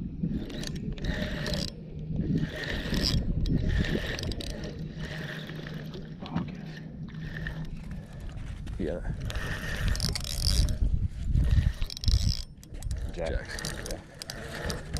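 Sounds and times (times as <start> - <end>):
spinning reel gears whirring: 0.0 - 14.9.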